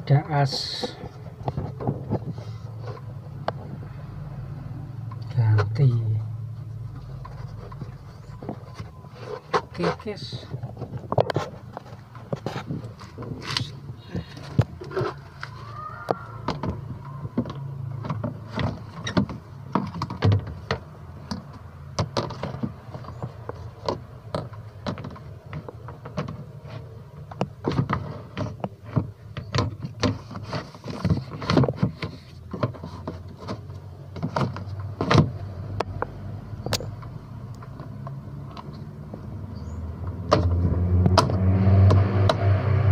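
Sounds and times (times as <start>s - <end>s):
plastic clicks and knocks: 16.1s - 26.5s.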